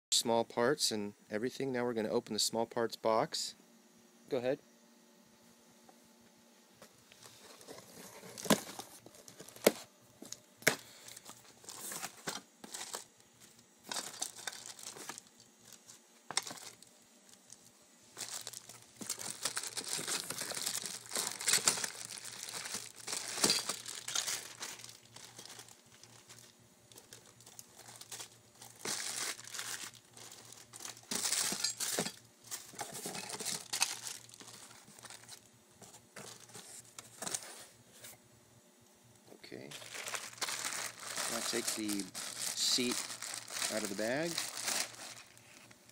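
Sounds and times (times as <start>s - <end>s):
cardboard rustling: 7.2s - 9.9s, 11.2s - 13.1s, 13.9s - 16.8s, 18.2s - 26.4s, 27.0s - 38.2s, 39.7s - 45.7s
plastic crinkling: 7.2s - 37.6s, 39.7s - 45.9s.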